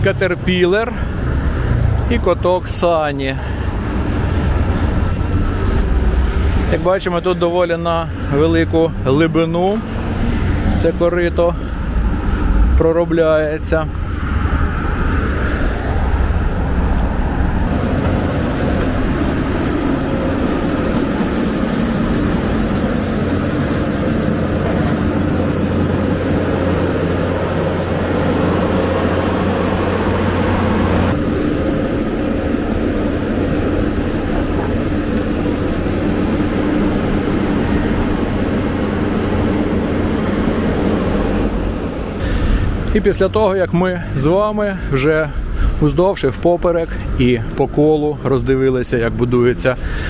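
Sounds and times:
heavy diesel machinery humming: 0.0 - 50.0.

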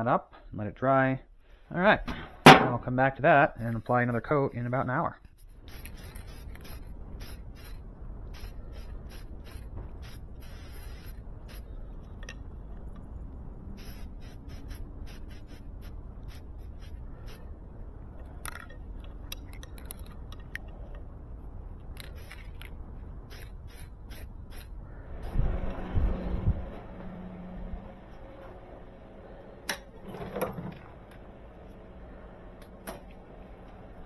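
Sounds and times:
aerosol can spraying: 5.4 - 11.7, 13.8 - 17.5, 22.0 - 25.5
low steady rumble: 5.9 - 30.0.

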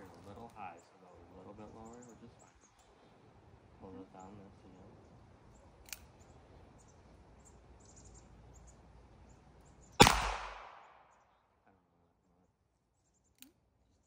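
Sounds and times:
gunshot with echo: 10.0 - 11.1.

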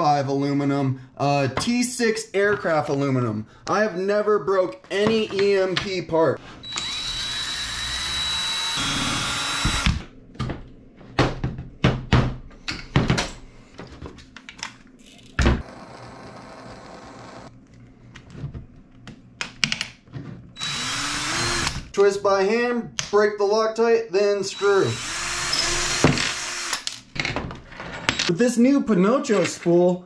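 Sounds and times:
cordless drill whirring: 6.6 - 10.0, 15.6 - 17.5, 20.6 - 21.9, 24.5 - 26.8.

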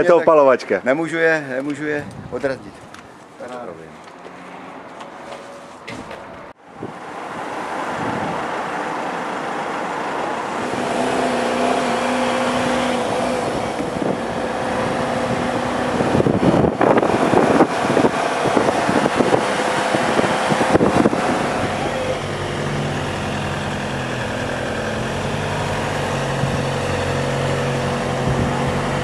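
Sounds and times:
road and wind noise: 0.0 - 29.0
wind buffeting microphone: 1.9 - 3.2, 5.9 - 8.7, 12.4 - 29.0.

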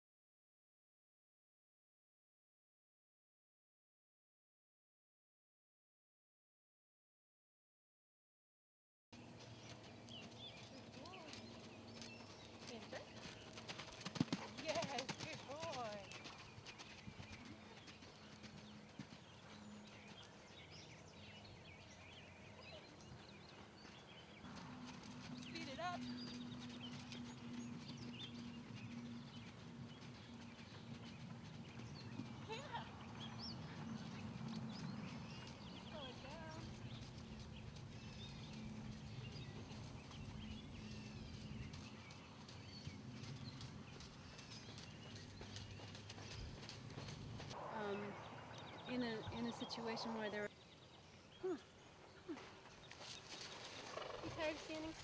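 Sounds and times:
horse hoofbeats on sand: 9.2 - 48.1, 52.6 - 55.0
birds chirping: 9.2 - 55.0.

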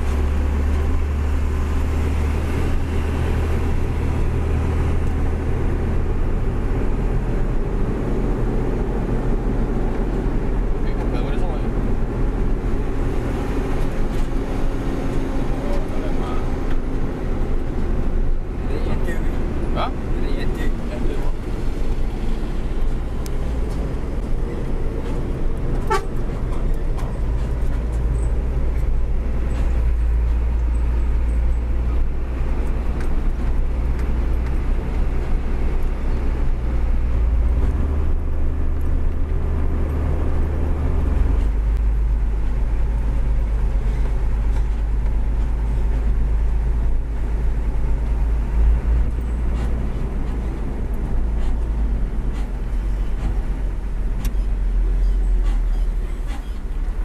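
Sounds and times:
truck diesel engine drone: 0.0 - 57.0.

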